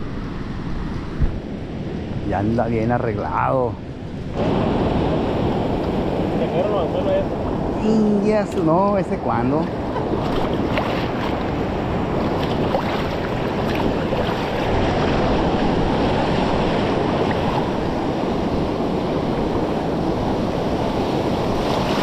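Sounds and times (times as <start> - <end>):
wind noise on microphone: 0.0 - 3.2, 3.8 - 22.0
water rushing around rocks: 4.4 - 18.5.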